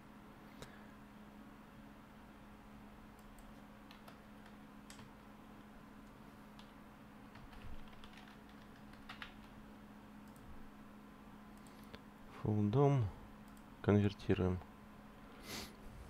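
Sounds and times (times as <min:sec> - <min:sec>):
low steady hum: 0:00.0 - 0:16.0
typing on keyboard: 0:03.2 - 0:05.1, 0:07.3 - 0:09.6.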